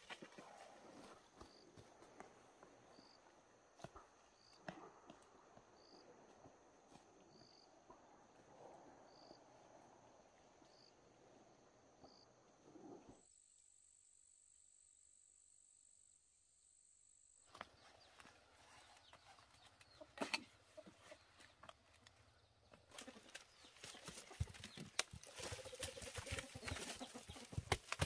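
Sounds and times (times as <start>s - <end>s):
insect drone: 8.6s - 17.5s.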